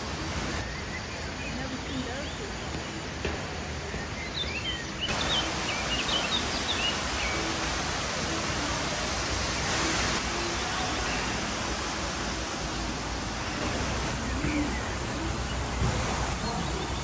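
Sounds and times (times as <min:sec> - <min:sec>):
indoor waterfall rushing: 0:00.0 - 0:17.0
small birds chirping: 0:00.1 - 0:17.0.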